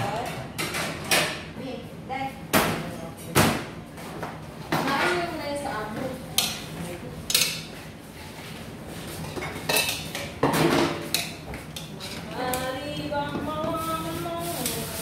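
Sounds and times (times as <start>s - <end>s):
metal utensils clinking on pot: 7.3s - 7.7s, 9.3s - 12.6s.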